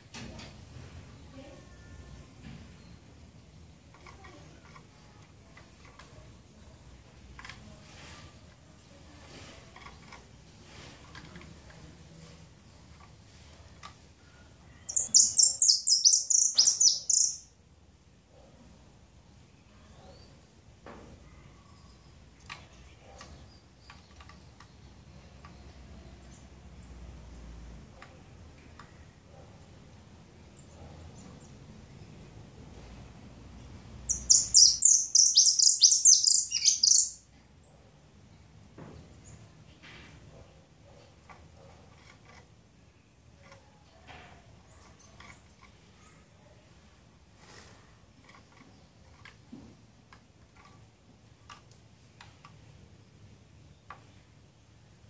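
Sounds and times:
bird ticks and clicks in cage: 0:12.8 - 0:14.0, 0:22.3 - 0:26.6, 0:48.2 - 0:52.8
faint high bird chirps: 0:14.2 - 0:17.6, 0:34.0 - 0:37.4.

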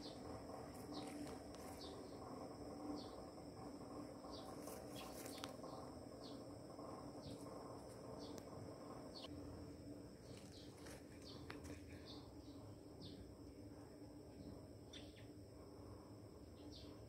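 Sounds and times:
bird chirping: 0:00.0 - 0:02.3, 0:02.9 - 0:03.4, 0:04.2 - 0:09.4, 0:10.2 - 0:13.3, 0:14.4 - 0:15.4, 0:16.5 - 0:17.0
insect drone: 0:00.0 - 0:17.0.

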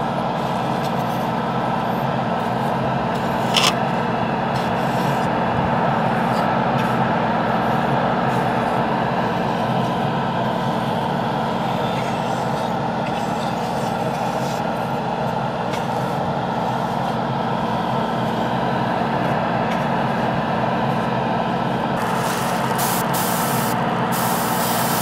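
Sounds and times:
airbrush motor hum: 0:21.8 - 0:25.0.

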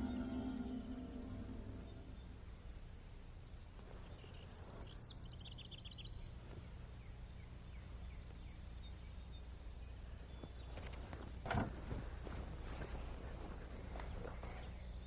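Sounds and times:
bird chirps and trill: 0:00.0 - 0:02.4
faint low hum: 0:00.0 - 0:15.0.

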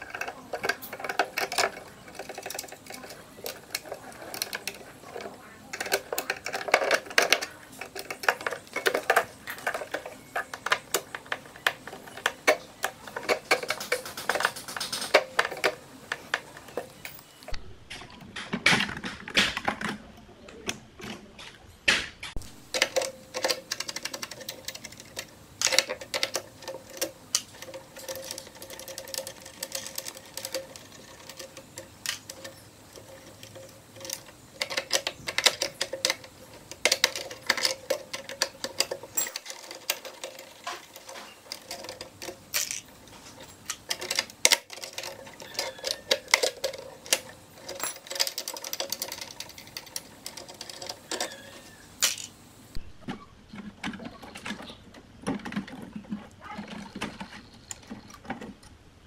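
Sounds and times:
wrench clicking on metal terminals: 0:22.4 - 0:52.4.

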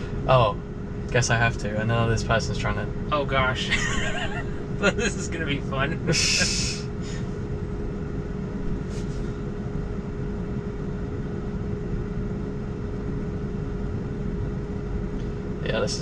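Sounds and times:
faint steady hum: 0:00.0 - 0:16.0
low rumble of traffic: 0:00.0 - 0:16.0.

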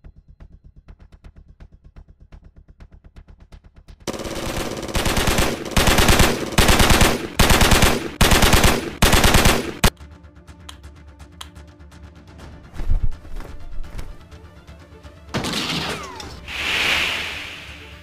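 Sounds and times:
submachine gun bursts: 0:04.1 - 0:09.9.

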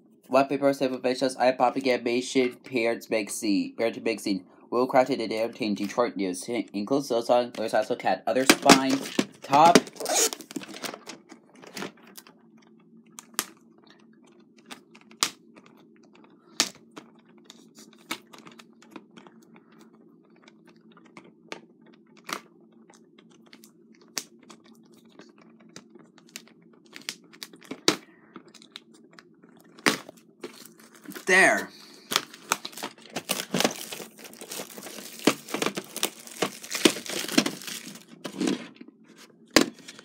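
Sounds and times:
fingernails picking at plastic wrap: 0:32.1 - 0:38.4.

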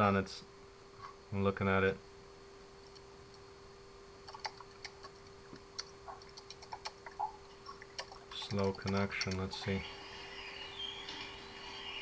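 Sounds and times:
faint steady hum: 0:00.0 - 0:12.0
keyboard and mouse clicking: 0:04.3 - 0:09.7.

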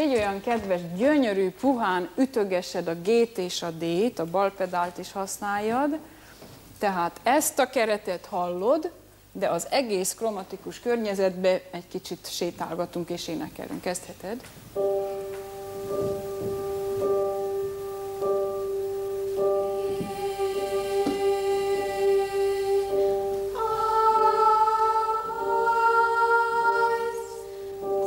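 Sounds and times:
grand piano drone: 0:14.8 - 0:28.0
children's choir singing a scale: 0:19.3 - 0:28.0.

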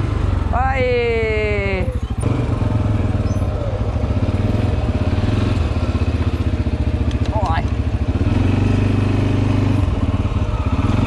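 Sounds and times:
quad bike engine running: 0:00.0 - 0:11.0.

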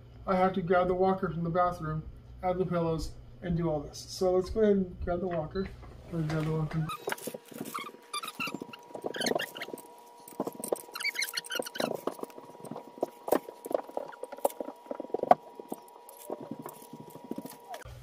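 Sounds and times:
short high squeaks: 0:06.8 - 0:17.9.

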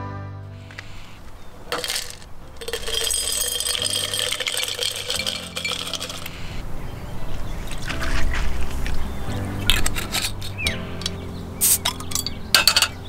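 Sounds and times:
ice cubes clinking into glass: 0:01.7 - 0:06.4.

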